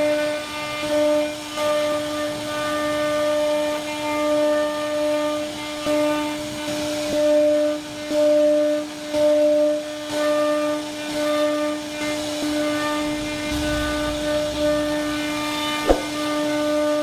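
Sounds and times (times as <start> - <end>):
cnc router spindle whining: 0.0 - 17.0
router bit carving wood: 0.0 - 17.0
sharp click: 15.9 - 16.1.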